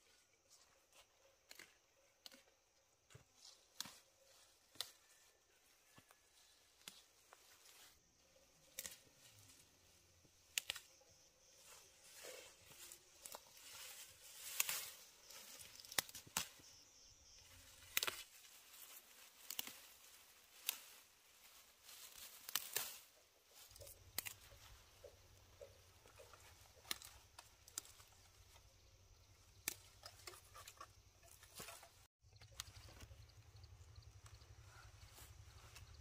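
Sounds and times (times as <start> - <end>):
plant material snapping: 10.5 - 11.0, 15.6 - 16.6, 17.8 - 18.3, 19.4 - 20.9, 22.1 - 23.1, 23.7 - 25.8, 26.7 - 28.2
tearing and rustling: 17.6 - 24.4.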